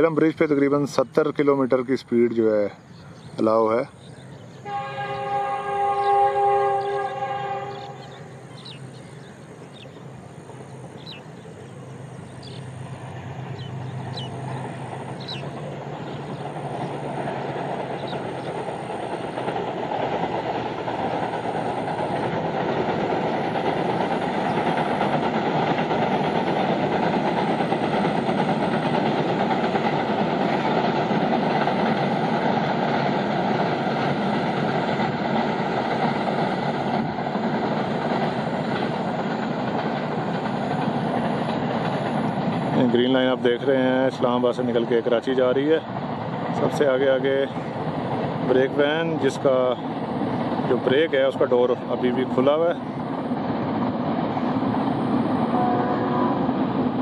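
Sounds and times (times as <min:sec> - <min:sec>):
train engine hum: 0:00.0 - 0:57.0
train wheels rumbling on bridge: 0:00.0 - 0:57.0.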